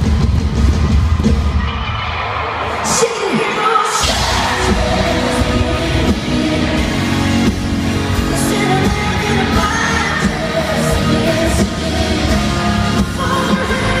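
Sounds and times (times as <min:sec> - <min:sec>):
live band playing country music: 0:03.0 - 0:14.0
woman singing into a microphone: 0:08.2 - 0:14.0.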